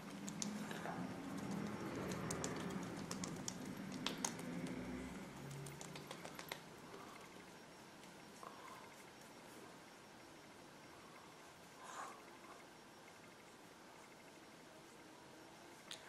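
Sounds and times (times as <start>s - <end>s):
fingertips patting skin: 0.2s - 0.7s, 1.3s - 4.8s, 5.4s - 6.7s.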